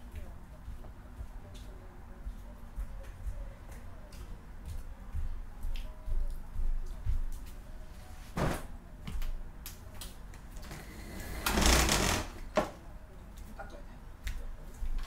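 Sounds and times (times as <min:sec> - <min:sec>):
laundry rustling: 0:07.8 - 0:08.8.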